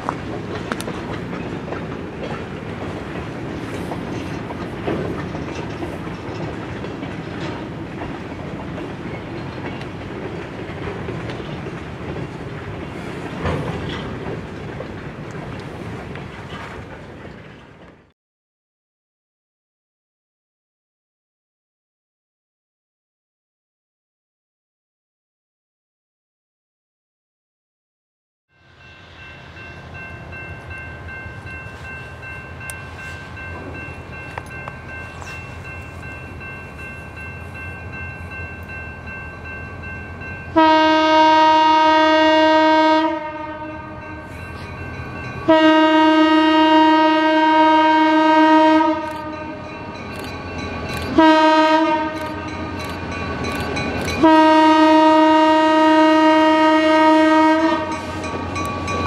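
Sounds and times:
approaching train rumble: 0.0 - 18.1, 28.5 - 59.0
locomotive air horn blasts: 40.6 - 44.3, 45.5 - 49.7, 51.2 - 52.6, 54.2 - 58.2.

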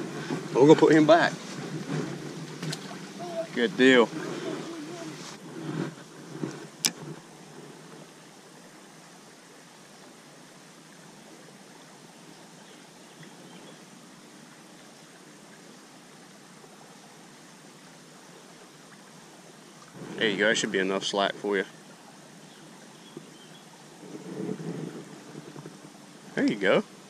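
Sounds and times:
creek flowing: 0.0 - 27.0.

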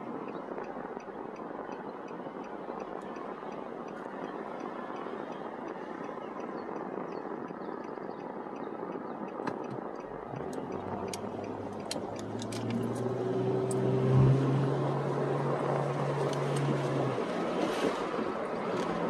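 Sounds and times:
light clicks: 0.0 - 13.9
car engine hum: 9.4 - 19.0.

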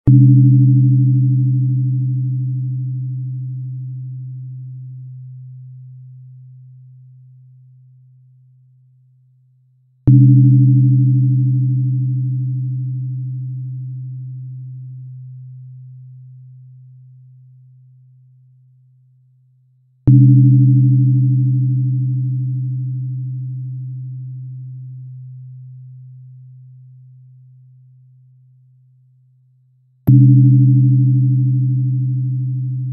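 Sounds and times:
tuning fork strike click: 0.1 - 5.0, 10.1 - 15.3, 20.1 - 25.0, 30.1 - 32.9
low ringing tone: 0.1 - 8.4, 10.1 - 18.6, 20.1 - 29.0, 30.1 - 32.9
tuning fork humming: 0.1 - 9.0, 10.1 - 19.0, 20.1 - 29.3, 30.1 - 32.9.

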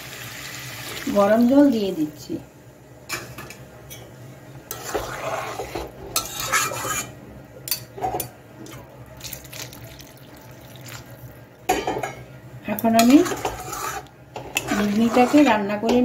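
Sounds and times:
water poured into curry: 9.2 - 11.4.

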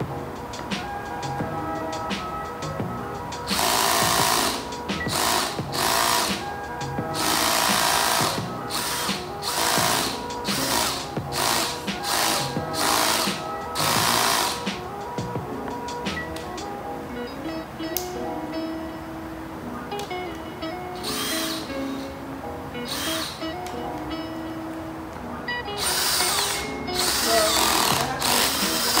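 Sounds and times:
background music: 0.0 - 29.0
cordless drill boring into wood: 3.6 - 6.4, 7.2 - 14.6, 21.0 - 21.7, 22.9 - 23.4, 25.8 - 29.0.

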